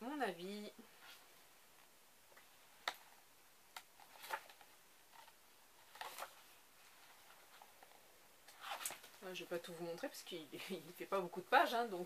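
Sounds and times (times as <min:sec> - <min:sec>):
book pages turning: 0:02.4 - 0:09.2.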